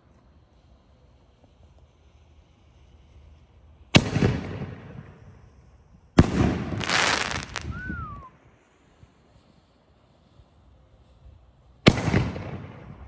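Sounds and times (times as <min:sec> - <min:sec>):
firework crackling: 0:00.0 - 0:13.0
firework shell bursting: 0:06.2 - 0:07.8
firework launch bang: 0:11.8 - 0:13.0.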